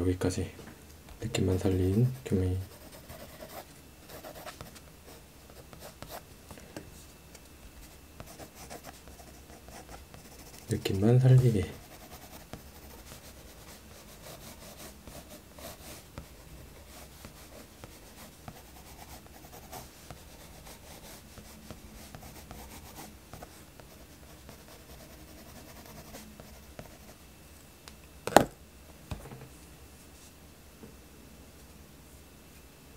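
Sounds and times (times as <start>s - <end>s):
pencil scratching on paper: 1.6s - 4.9s, 7.8s - 27.1s.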